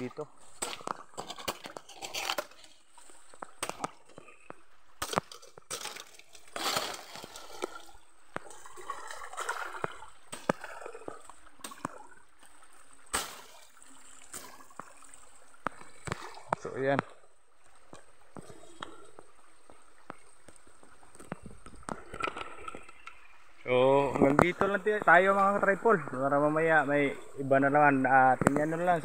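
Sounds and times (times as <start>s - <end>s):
twigs snapping and grass rustling: 0.0s - 17.0s
stream water gurgling: 0.0s - 29.0s.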